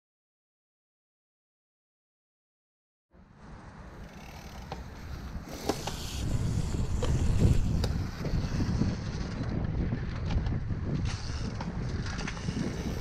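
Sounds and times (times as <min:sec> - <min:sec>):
bike clicks and rattles: 0:04.0 - 0:13.0
wind buffeting microphone: 0:05.3 - 0:13.0
bike tyres rumbling on dirt: 0:05.4 - 0:13.0.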